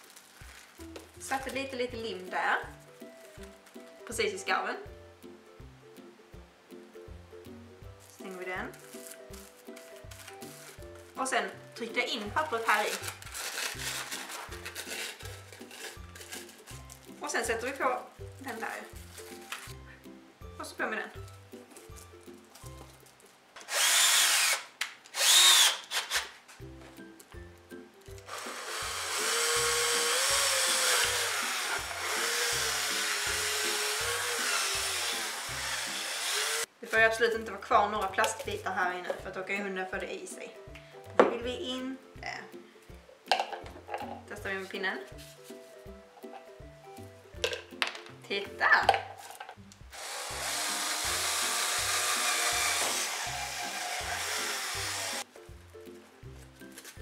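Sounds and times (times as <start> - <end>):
cordless drill whining: 23.6 - 26.3, 28.3 - 36.7, 50.0 - 55.2.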